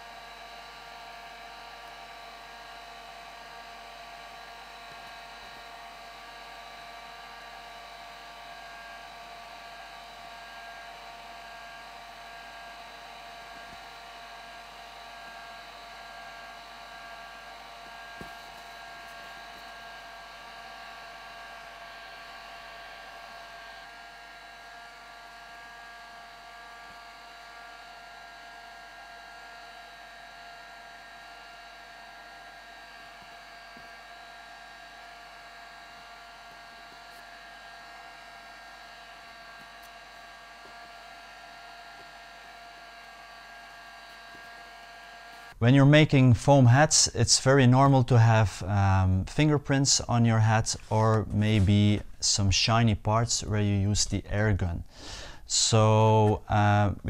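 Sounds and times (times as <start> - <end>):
heat gun blowing air: 0.0 - 45.6, 54.8 - 56.2.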